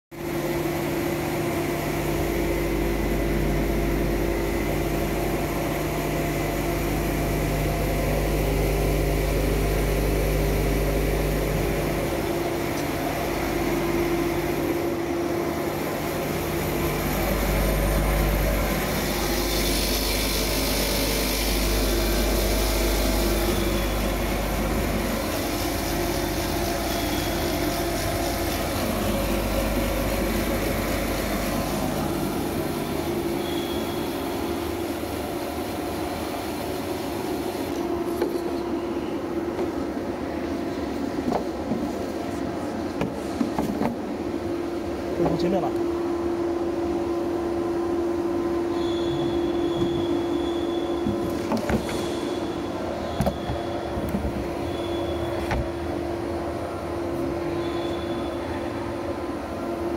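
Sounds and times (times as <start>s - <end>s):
grading machine humming: 0.8s - 36.5s.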